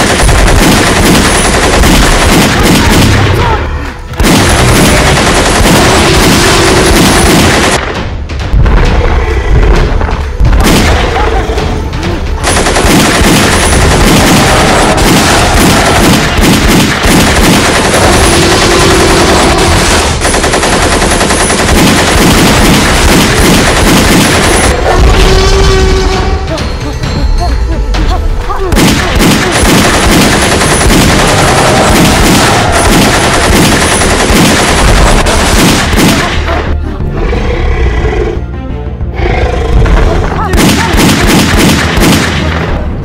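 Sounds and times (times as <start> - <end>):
automatic rifle gunfire: 0.0 - 3.4, 4.2 - 8.0, 10.6 - 11.2, 12.4 - 24.8, 28.7 - 36.6, 40.5 - 42.8.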